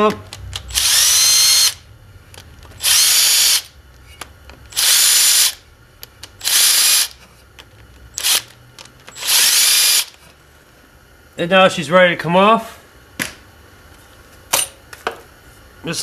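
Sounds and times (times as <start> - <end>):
cordless drill whining: 0.8 - 1.8, 2.8 - 3.7, 4.7 - 5.6, 6.4 - 7.2, 8.2 - 8.5, 9.1 - 10.1.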